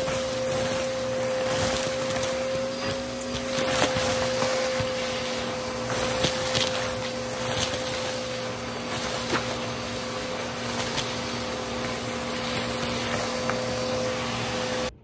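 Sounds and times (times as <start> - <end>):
grit clicking up vacuum tool: 0.0 - 14.6
vacuum cleaner running: 0.0 - 15.0.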